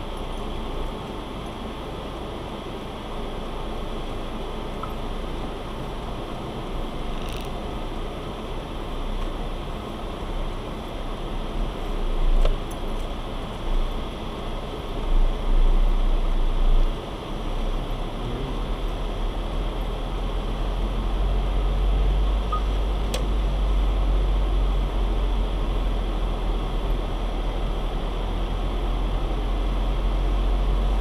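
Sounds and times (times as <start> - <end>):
car engine and road rumble: 0.0 - 31.0.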